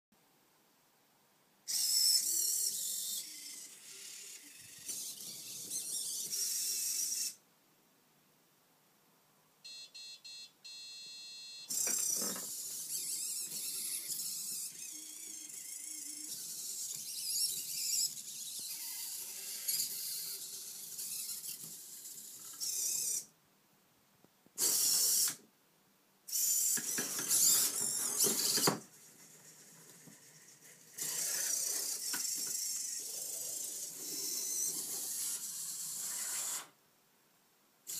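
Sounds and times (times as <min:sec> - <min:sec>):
robot servo motors whirring: 0:01.7 - 0:07.4, 0:11.7 - 0:23.3, 0:24.6 - 0:25.4, 0:26.3 - 0:36.7.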